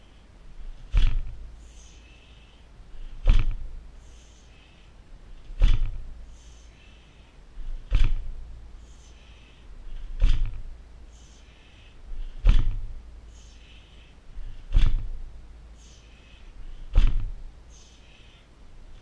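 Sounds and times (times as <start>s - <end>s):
hissing breaths: 0.0s - 19.0s
fists thudding on heavy bag: 0.8s - 1.4s, 3.2s - 3.8s, 5.5s - 6.1s, 7.8s - 8.4s, 10.1s - 10.7s, 12.4s - 13.0s, 14.6s - 15.2s, 16.9s - 17.5s.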